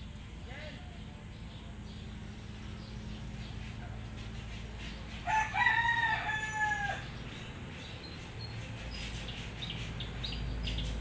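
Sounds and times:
faint small birds chirping: 0:00.0 - 0:11.0
rooster crowing: 0:05.2 - 0:07.2.

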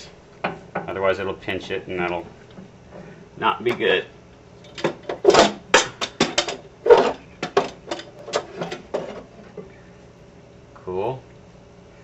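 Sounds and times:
metallic clicking and knocking: 0:04.7 - 0:09.2.

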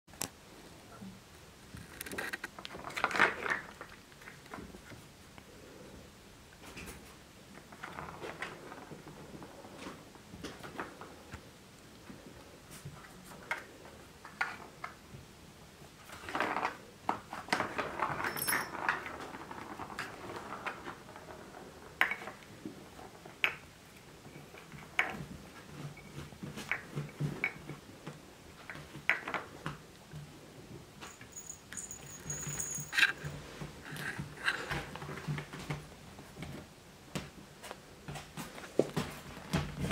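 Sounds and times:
toy rattling: 0:31.1 - 0:33.3.

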